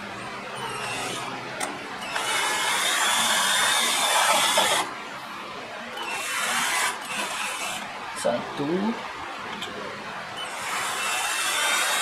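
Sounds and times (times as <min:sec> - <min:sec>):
power drill whining: 0:00.6 - 0:01.3, 0:02.0 - 0:04.9, 0:06.0 - 0:07.8, 0:10.4 - 0:12.0.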